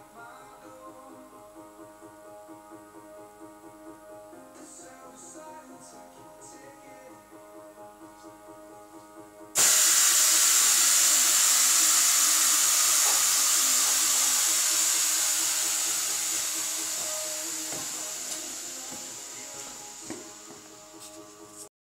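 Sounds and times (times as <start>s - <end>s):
compressed air hissing: 9.6s - 21.7s.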